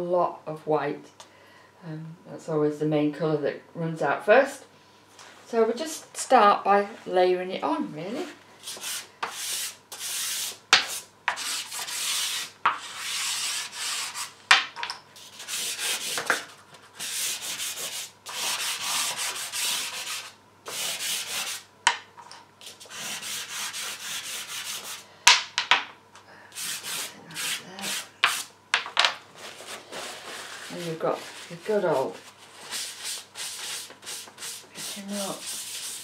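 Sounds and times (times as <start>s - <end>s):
pastel scraping on paper: 29.4s - 36.0s.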